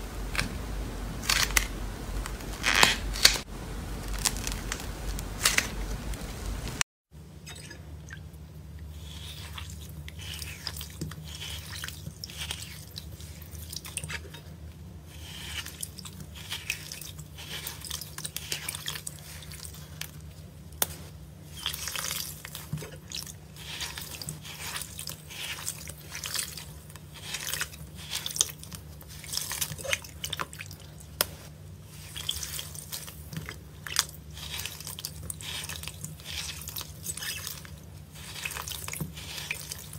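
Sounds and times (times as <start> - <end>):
low steady hum: 0.0 - 39.9
wet slime squelches: 7.4 - 39.9.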